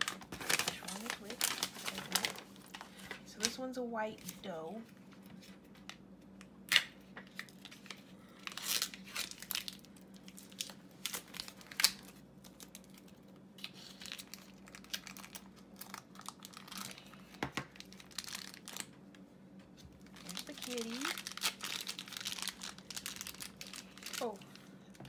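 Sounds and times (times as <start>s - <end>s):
foil pouch crinkling: 0.0s - 3.6s, 7.2s - 18.9s, 20.0s - 24.7s.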